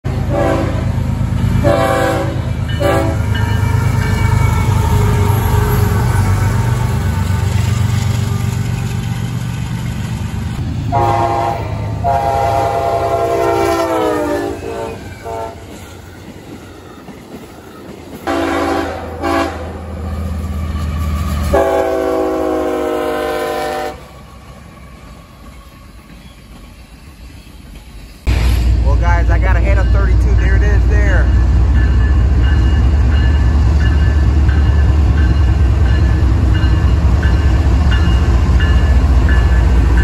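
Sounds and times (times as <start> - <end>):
passing train rumble: 0.0 - 40.0
locomotive horn: 0.1 - 1.0, 1.6 - 7.1, 10.9 - 15.8, 18.2 - 19.9, 20.5 - 24.2.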